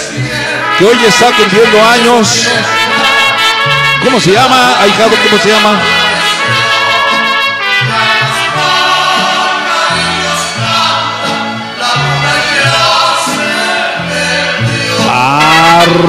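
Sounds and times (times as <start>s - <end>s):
voices singing together: 0.0s - 1.2s, 2.2s - 4.0s, 5.7s - 16.0s
cumbia music: 0.0s - 16.0s.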